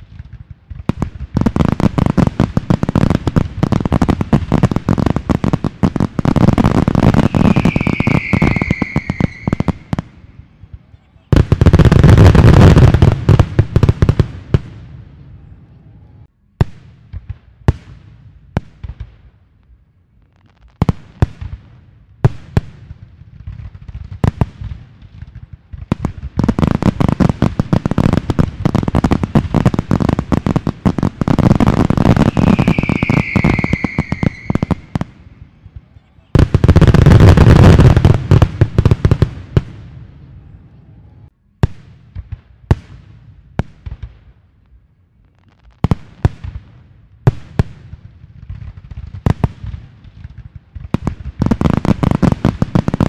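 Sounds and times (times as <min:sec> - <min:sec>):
fireworks cracking and popping: 0:00.0 - 0:14.8, 0:16.6 - 0:39.9, 0:41.6 - 0:53.0
firework bangs: 0:00.0 - 0:15.5, 0:20.8 - 0:40.6, 0:45.7 - 0:53.0
falling firework whistle: 0:06.8 - 0:10.2, 0:32.0 - 0:35.2.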